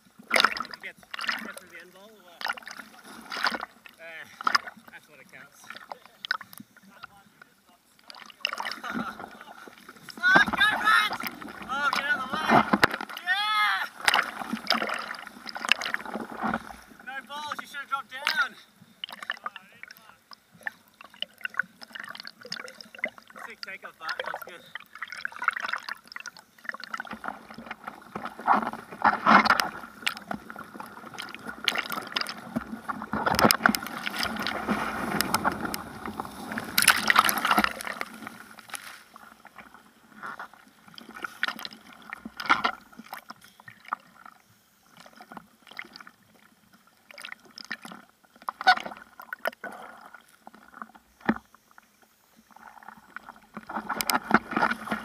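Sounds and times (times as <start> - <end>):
seawater splashing: 0.0 - 51.5, 52.4 - 55.0
whitewater rushing: 8.4 - 18.6.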